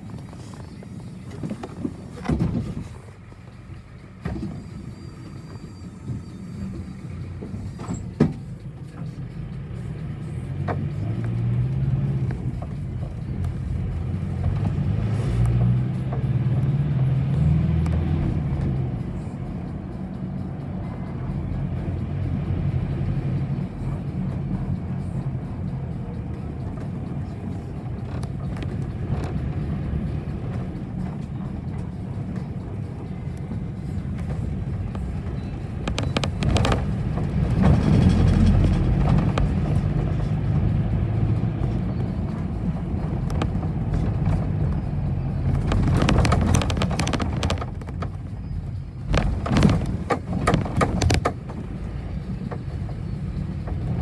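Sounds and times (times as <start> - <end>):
engine and road drone: 0.0 - 54.0
rattling and knocking: 35.8 - 40.1, 45.5 - 48.3, 49.1 - 51.8.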